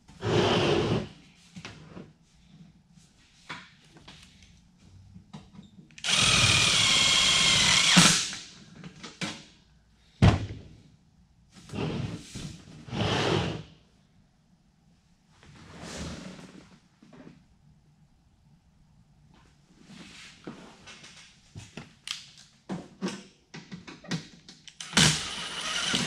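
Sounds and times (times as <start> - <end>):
cordless drill driving screw: 6.0 - 8.4, 24.8 - 26.0.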